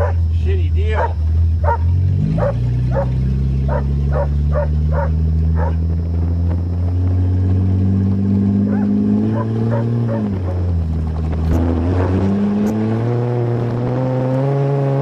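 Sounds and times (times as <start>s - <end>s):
dog barking: 0.0s - 0.3s, 0.9s - 5.8s, 8.6s - 10.4s
car engine running: 0.0s - 15.0s.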